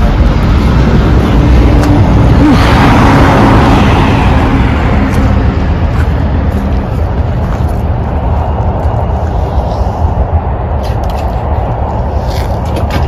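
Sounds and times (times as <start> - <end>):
low traffic rumble: 0.0 - 13.0
vehicle passing: 0.0 - 13.0.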